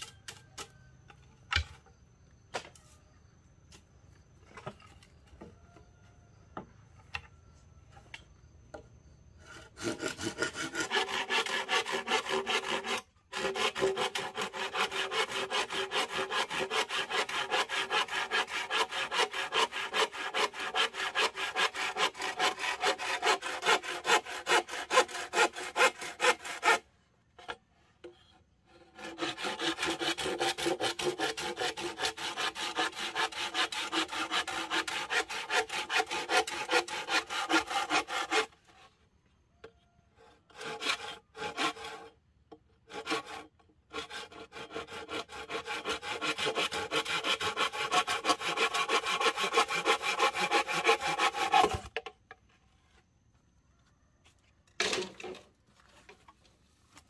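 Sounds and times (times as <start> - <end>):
hand saw cutting wood: 9.4 - 39.0, 40.2 - 42.2, 42.8 - 52.1.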